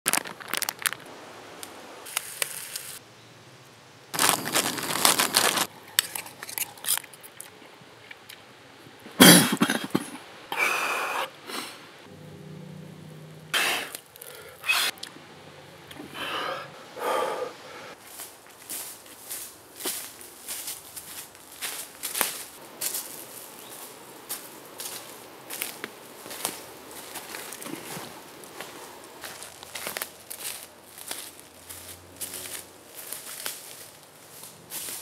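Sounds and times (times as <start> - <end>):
footsteps crunching on forest floor: 4.2 - 6.4, 17.9 - 35.0.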